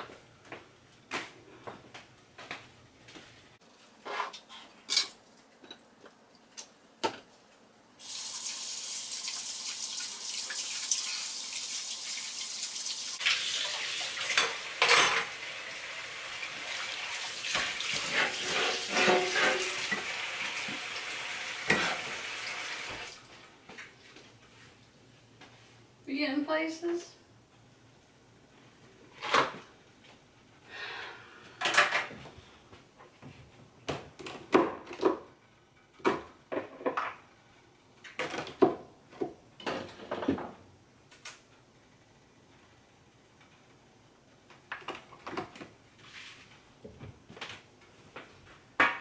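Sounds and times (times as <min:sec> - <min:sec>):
dishes and utensils clinking: 0:04.0 - 0:05.8, 0:14.3 - 0:15.3, 0:18.1 - 0:20.1
tap water running: 0:08.0 - 0:23.3.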